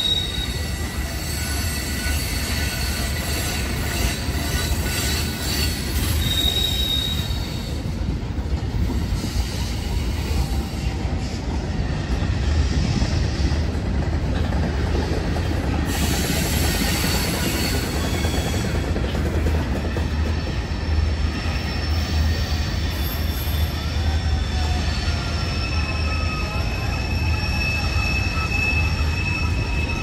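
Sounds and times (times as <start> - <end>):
high wheel squeal: 0.0 - 8.0, 8.8 - 13.5, 15.4 - 19.1, 20.0 - 30.0
rumble of wheels on rail: 0.0 - 30.0.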